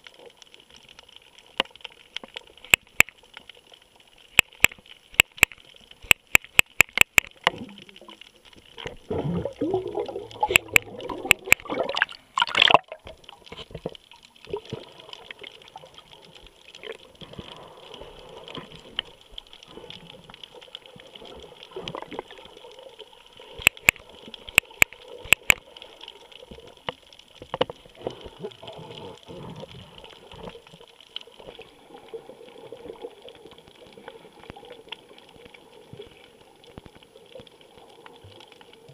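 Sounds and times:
water against camera housing: 4.3s - 7.8s, 9.6s - 14.0s, 23.6s - 25.6s.

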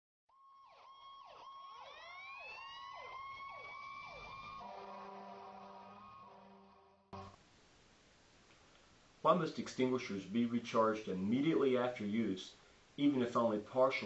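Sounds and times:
emergency siren yelping: 0.3s - 7.3s
siren wail: 0.3s - 7.3s
steady horn-like tone: 4.5s - 7.4s.

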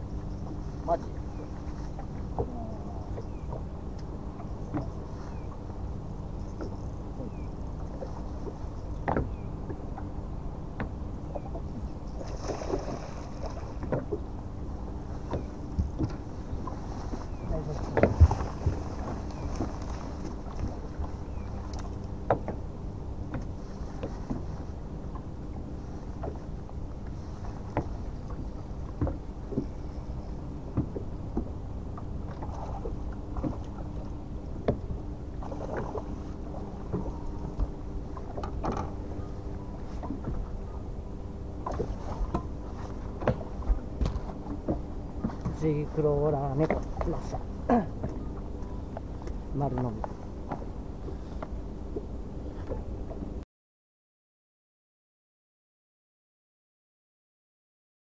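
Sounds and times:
low wind rumble on microphone: 0.0s - 53.4s
small waves slapping boat hull: 0.0s - 53.4s
knocks on boat: 9.0s - 10.1s, 17.8s - 19.7s, 22.2s - 22.6s, 30.7s - 31.5s, 34.6s - 36.0s, 41.6s - 45.6s.

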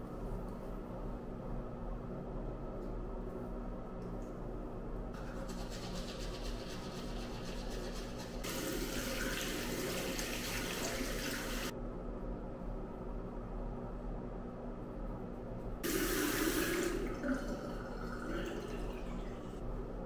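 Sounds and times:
steady low hum: 0.0s - 20.0s
toothbrush scrubbing teeth: 5.2s - 8.6s
tap running water: 5.2s - 11.7s, 15.8s - 19.6s.

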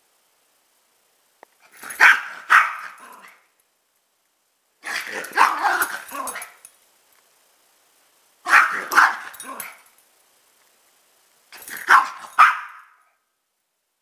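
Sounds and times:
dogs barking: 1.8s - 3.2s, 4.9s - 6.5s, 8.5s - 9.7s, 11.6s - 13.0s.

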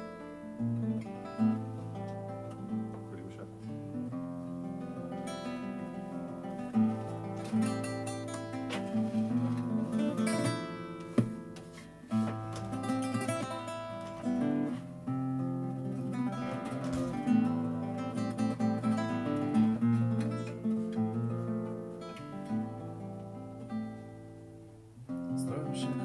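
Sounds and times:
acoustic guitar playing: 0.0s - 26.0s.

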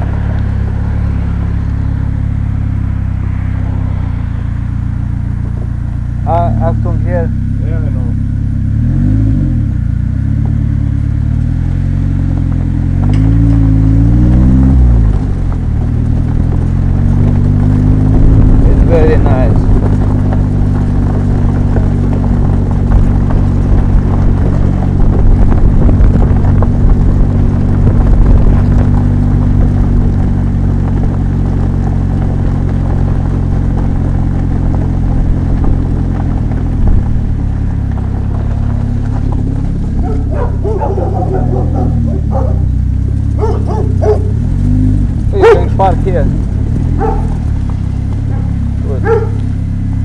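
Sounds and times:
trike engine running: 0.0s - 50.0s
dog barking: 40.0s - 42.7s, 43.4s - 44.4s, 45.4s - 45.7s, 47.0s - 47.4s, 48.3s - 49.4s.

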